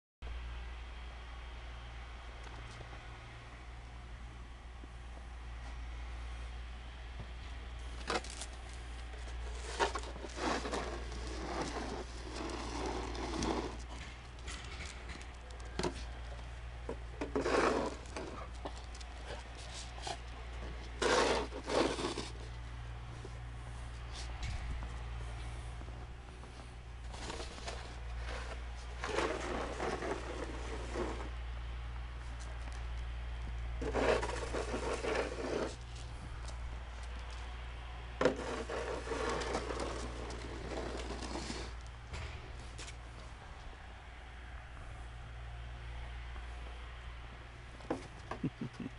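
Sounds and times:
steady low hum: 0:00.3 - 0:48.9
dogs scuffing and snuffling in snow: 0:07.8 - 0:14.9, 0:15.6 - 0:31.3, 0:33.8 - 0:37.3, 0:38.3 - 0:41.9.

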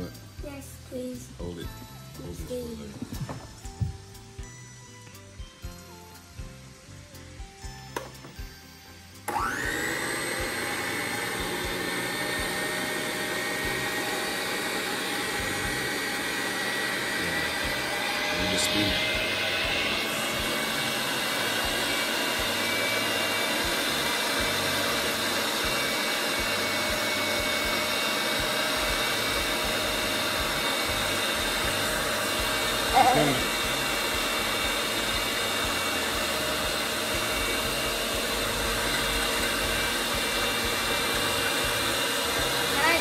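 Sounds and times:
electric stand mixer whirring: 0:09.0 - 0:43.0.

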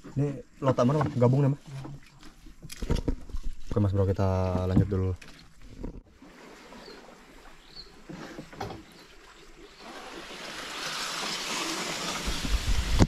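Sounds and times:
quiet water noise: 0:00.0 - 0:13.0
leaves brushing past: 0:09.7 - 0:13.0.

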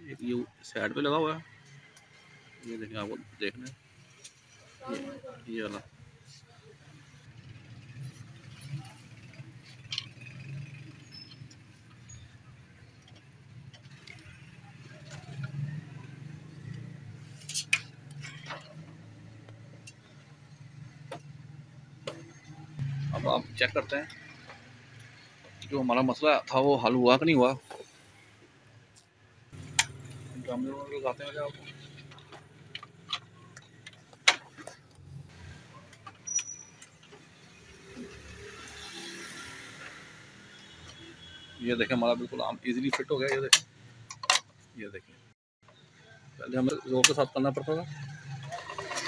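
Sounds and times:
brief high squeak: 0:36.2 - 0:36.8.

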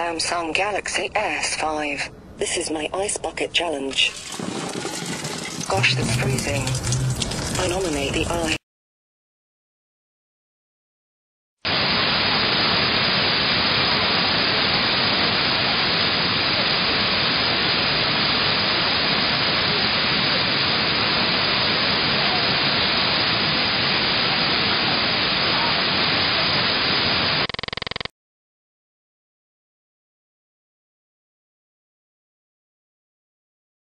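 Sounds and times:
loud static hiss: 0:11.7 - 0:28.1.

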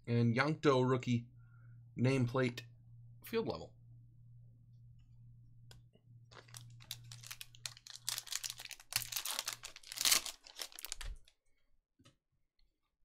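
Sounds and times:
foil wrapper crinkling and tearing: 0:06.3 - 0:11.3.

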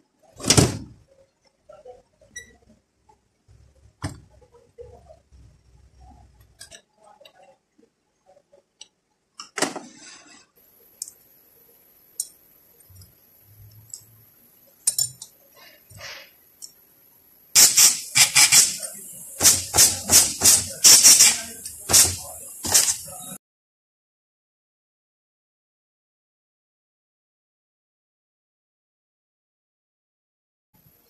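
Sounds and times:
metal parts clinking: 0:14.8 - 0:15.3
compressed air hissing: 0:15.6 - 0:16.4, 0:17.6 - 0:23.4.

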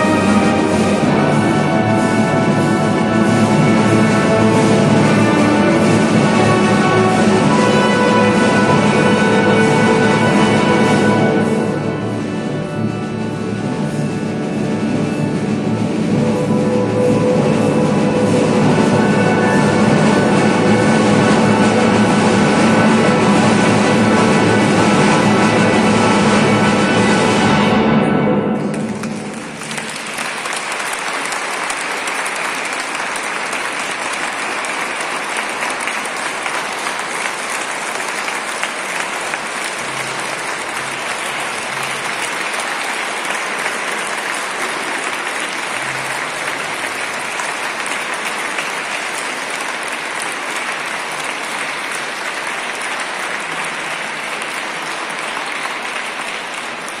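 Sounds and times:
audience applauding: 0:00.0 - 0:14.0, 0:16.1 - 0:27.6, 0:28.6 - 0:57.0
orchestra chord: 0:00.0 - 0:30.6.

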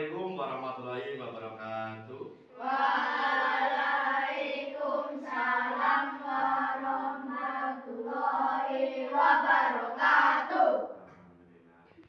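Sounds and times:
children chanting in unison: 0:02.5 - 0:11.0.

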